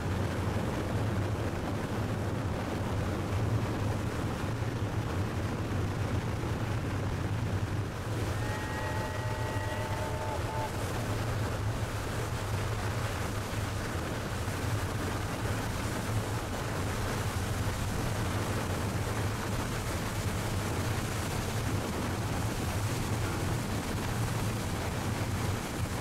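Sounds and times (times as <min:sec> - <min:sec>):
water noise: 0:00.0 - 0:26.0
wind noise: 0:00.0 - 0:26.0
boat motor running: 0:06.8 - 0:26.0.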